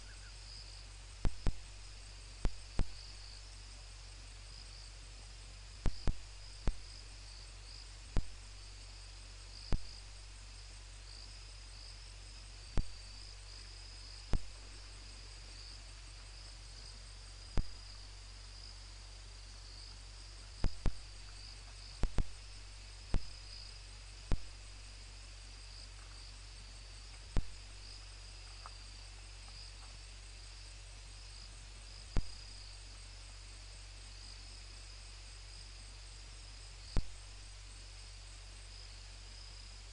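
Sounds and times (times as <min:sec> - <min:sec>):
low steady hum: 0:00.0 - 0:39.9
night insects chirping: 0:00.0 - 0:39.9.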